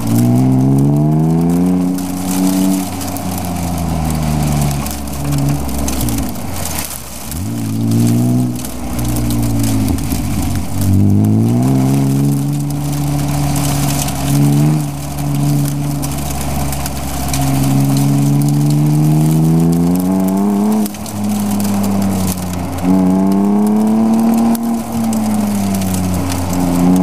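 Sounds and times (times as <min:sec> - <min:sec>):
car engine revving: 0:00.0 - 0:27.0
steady rush of noise: 0:00.0 - 0:27.0.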